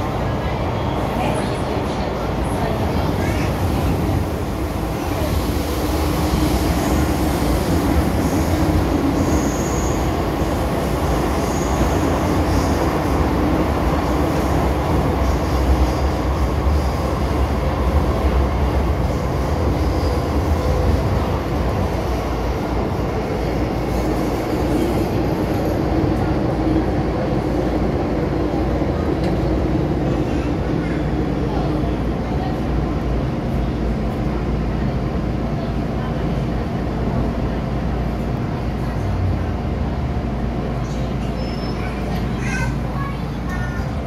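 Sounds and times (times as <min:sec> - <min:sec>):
faint high squeals: 0:41.2 - 0:42.1.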